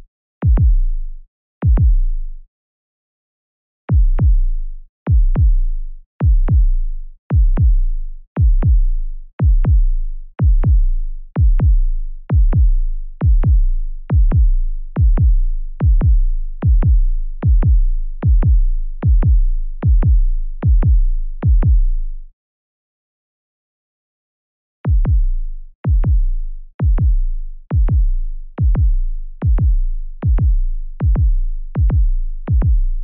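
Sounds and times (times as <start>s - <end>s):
deep booming double thumps: 0.4s - 0.8s, 1.6s - 2.0s, 9.4s - 21.9s, 24.9s - 33.0s.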